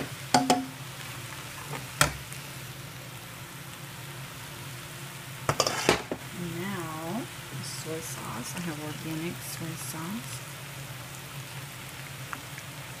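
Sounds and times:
rice sizzling in a frying pan: 0.0s - 13.0s
spatula knocking against a pan: 0.4s - 0.8s.

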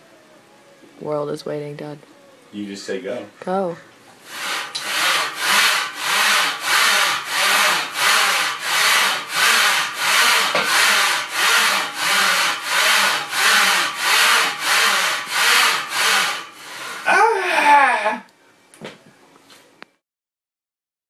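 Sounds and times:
training rig rasping back and forth: 4.3s - 17.1s.

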